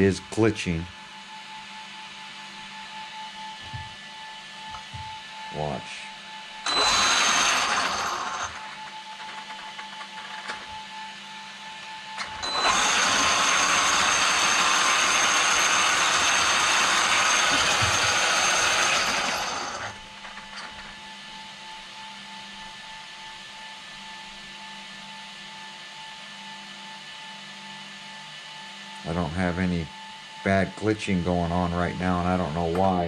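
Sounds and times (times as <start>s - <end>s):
electric motor whirring: 6.7s - 9.8s, 12.2s - 20.0s.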